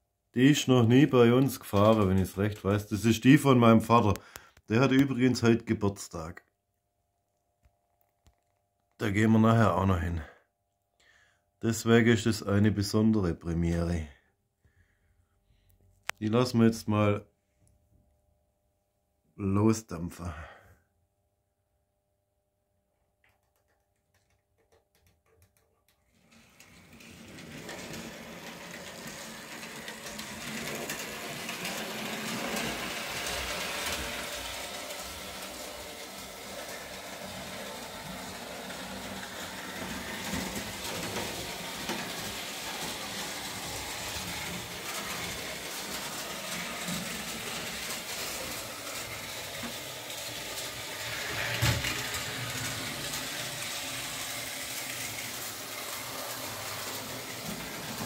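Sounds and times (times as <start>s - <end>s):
model train motor whirring: 26.2s - 58.0s.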